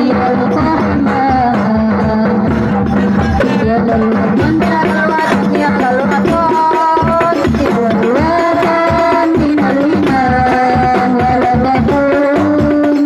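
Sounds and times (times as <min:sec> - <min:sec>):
devotional singing into microphones: 0:00.0 - 0:13.0
frame drums with jingles: 0:00.0 - 0:13.0.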